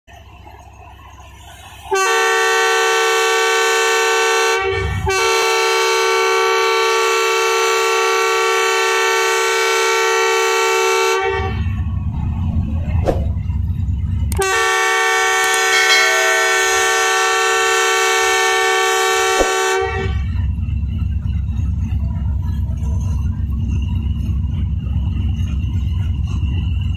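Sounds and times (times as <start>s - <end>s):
diesel locomotive horn blasts: 1.8s - 12.1s, 14.3s - 20.6s
low rumble: 11.2s - 14.4s.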